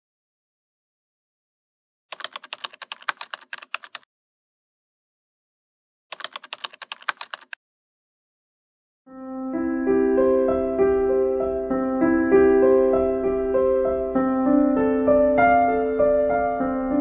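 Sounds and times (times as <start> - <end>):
keyboard key clicks: 2.1 - 4.0, 6.1 - 7.6.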